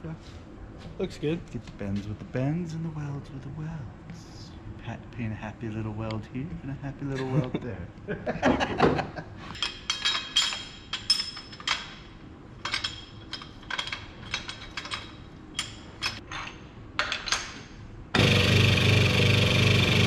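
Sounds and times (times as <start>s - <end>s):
metal-on-metal clinks: 9.5s - 12.0s
loud motor noise: 18.1s - 20.0s.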